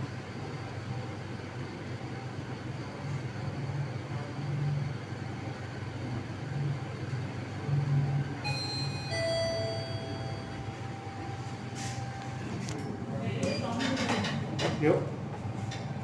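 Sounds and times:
elevator running with low hum: 0:00.0 - 0:16.0
elevator arrival chime: 0:08.4 - 0:12.6.

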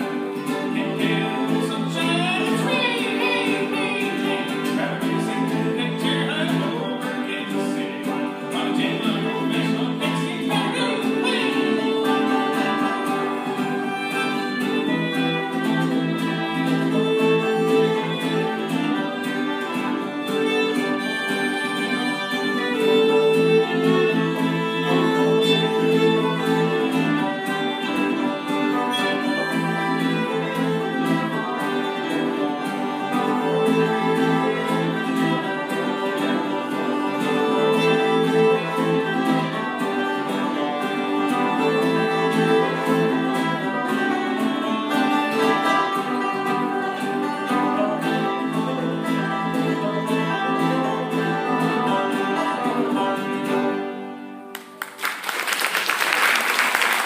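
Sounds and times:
banjo: 0:00.0 - 0:54.6
fiddle: 0:00.0 - 0:55.0
plucked string instrument: 0:00.0 - 0:55.0
applause: 0:54.5 - 0:57.0.

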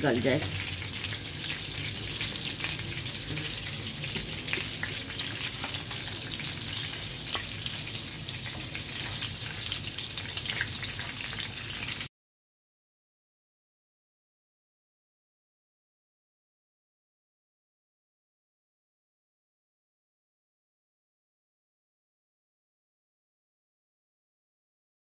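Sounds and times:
oil sizzling with crackling pops: 0:00.0 - 0:12.1.

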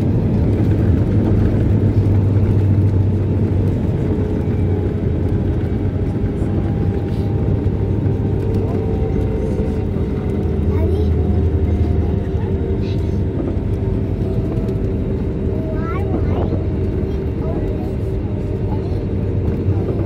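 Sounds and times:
aircraft cabin rumble on runway: 0:00.0 - 0:20.0.

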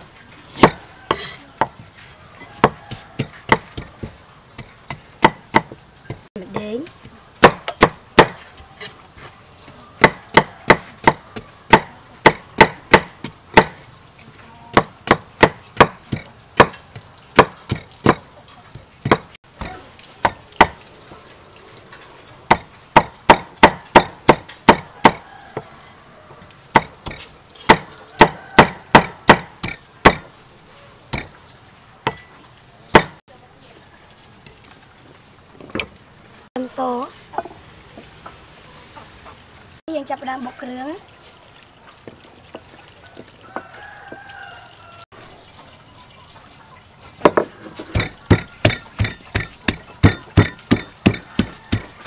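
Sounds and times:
cleaver chopping on wooden board: 0:00.6 - 0:01.8, 0:02.6 - 0:06.7, 0:07.4 - 0:08.5, 0:10.0 - 0:13.8, 0:14.7 - 0:16.8, 0:17.4 - 0:18.2, 0:19.0 - 0:20.8, 0:22.5 - 0:25.7, 0:26.7 - 0:30.3, 0:32.9 - 0:33.2, 0:47.3 - 0:52.0.

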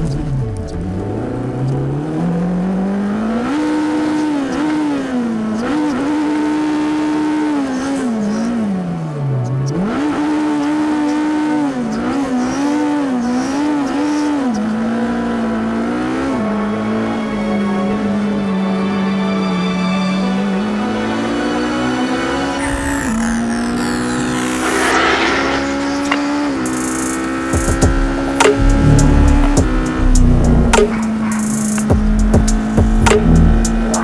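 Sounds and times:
race car engine revving: 0:21.1 - 0:34.0.

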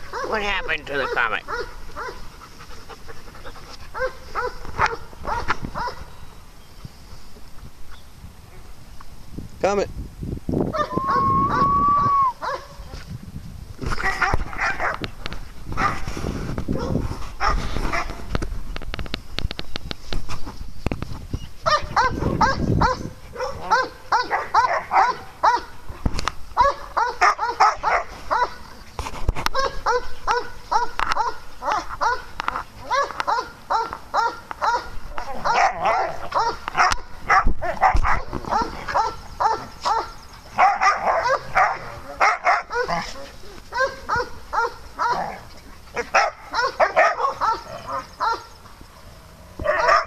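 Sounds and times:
dog barking: 0:00.1 - 0:02.2, 0:04.0 - 0:06.1, 0:12.4 - 0:12.7, 0:14.0 - 0:15.0, 0:16.8 - 0:18.1, 0:21.7 - 0:25.8, 0:26.6 - 0:28.6, 0:29.5 - 0:45.4, 0:46.0 - 0:48.5, 0:49.6 - 0:50.0.

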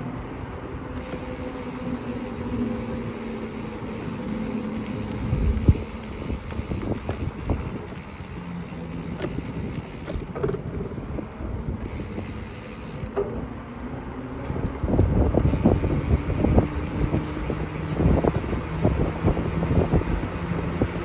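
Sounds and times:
tyre rumble on asphalt: 0:03.5 - 0:14.1
wind buffeting the microphone: 0:04.8 - 0:13.7, 0:14.4 - 0:21.0.

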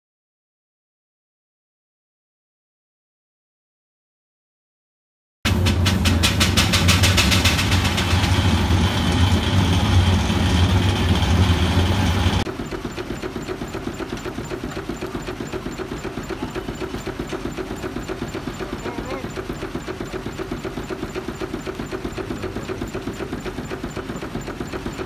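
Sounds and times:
steam engine exhaust chuffing: 0:05.5 - 0:25.0.

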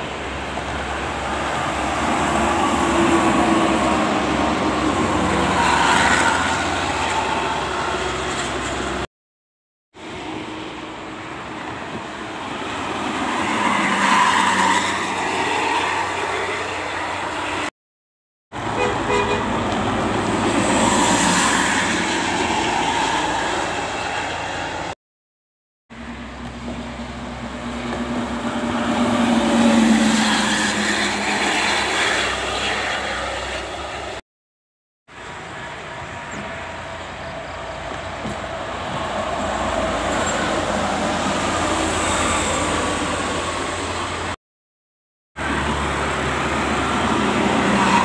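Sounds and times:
buses passing on highway: 0:00.0 - 0:09.1, 0:09.9 - 0:17.8, 0:18.5 - 0:25.0, 0:25.9 - 0:34.2, 0:35.1 - 0:44.4, 0:45.4 - 0:48.0
multi-tone air horns: 0:18.7 - 0:19.6.

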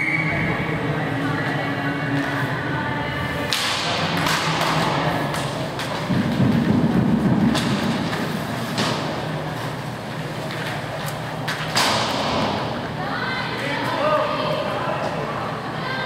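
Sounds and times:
sticks and puck clacking: 0:03.5 - 0:12.5.

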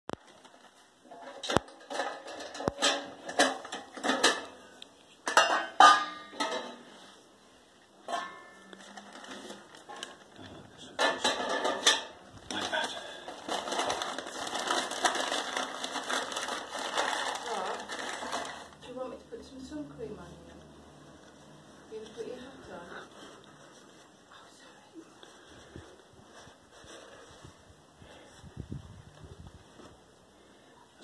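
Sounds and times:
newspaper rustling: 0:00.1 - 0:01.0, 0:08.7 - 0:10.4, 0:12.5 - 0:19.2
sheet metal clanking: 0:05.3 - 0:06.9.

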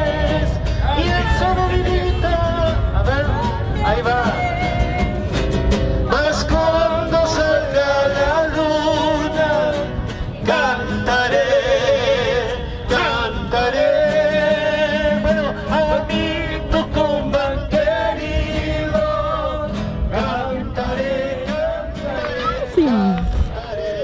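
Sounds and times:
person singing with vibrato: 0:20.1 - 0:24.0.

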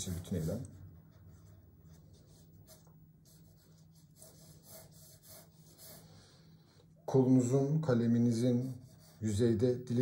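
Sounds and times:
pencil scratching on paper: 0:00.0 - 0:06.1, 0:08.3 - 0:09.5.

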